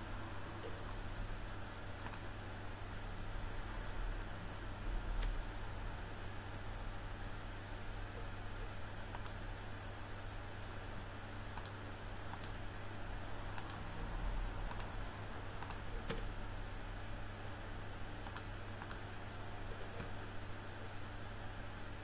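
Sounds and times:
faint room hiss: 0.0 - 22.0
low electrical hum: 0.0 - 22.0
computer clicks: 2.0 - 2.3, 9.1 - 9.4, 11.5 - 12.6, 13.5 - 13.8, 14.7 - 14.9, 15.6 - 16.3, 18.2 - 19.1.

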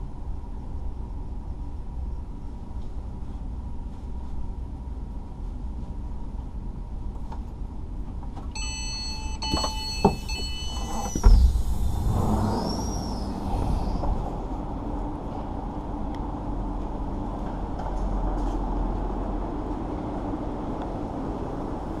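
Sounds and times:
low hum of stationary train: 0.0 - 22.0
door warning beeps: 8.5 - 13.2
sliding door opening with thump: 9.4 - 14.4.

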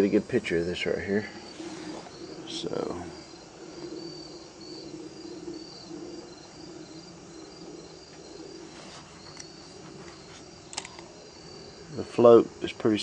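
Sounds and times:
insects chirping: 0.0 - 13.0
faint clicks: 9.2 - 11.1.

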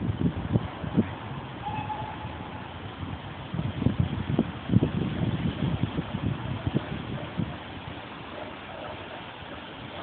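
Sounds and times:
outdoor hiss: 0.0 - 10.0.

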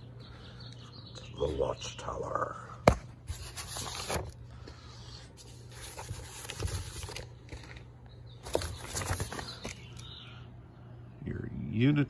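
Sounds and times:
steady low hum: 0.0 - 12.0
paper magazines rustling: 3.2 - 4.4, 5.4 - 10.2.

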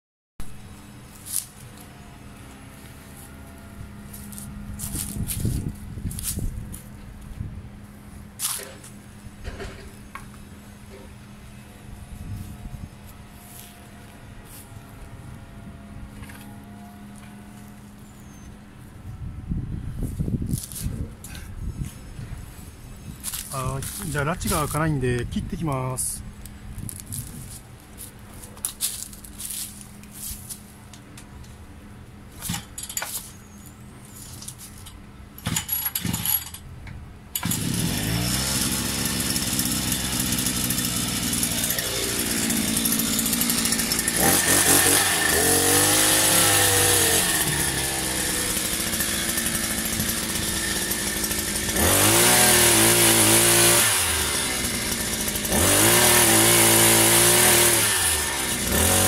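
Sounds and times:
small petrol engine idling and revving: 35.4 - 36.6, 37.4 - 59.0.

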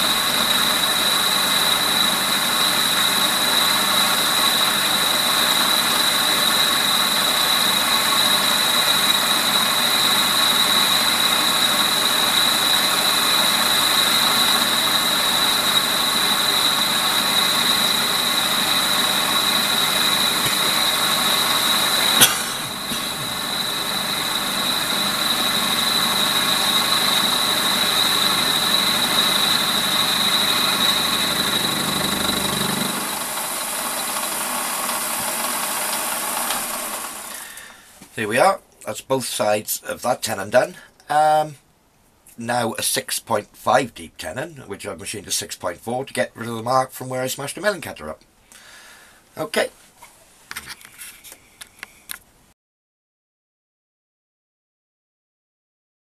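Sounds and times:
lathe machining with high whine: 0.0 - 37.9.

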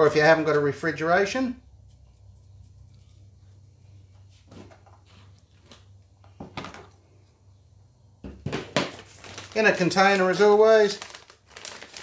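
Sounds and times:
low steady hum: 1.0 - 8.4
plastic container knocking on wood: 8.2 - 9.0.

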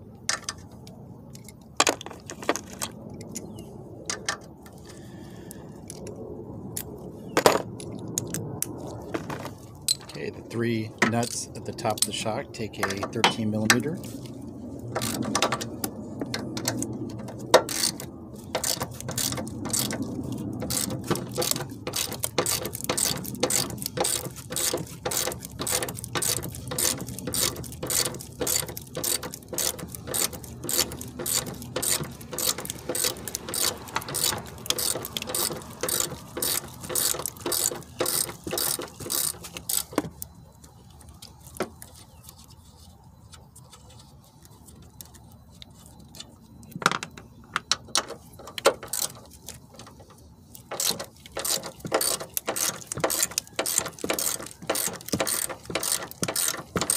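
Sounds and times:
ratchet wrench clicking: 15.0 - 15.5, 17.6 - 18.0, 18.6 - 20.0, 20.6 - 40.1, 50.7 - 56.9.

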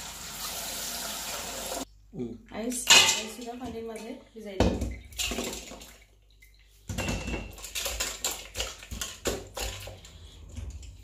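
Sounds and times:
water splashing in a bowl: 5.0 - 10.1.

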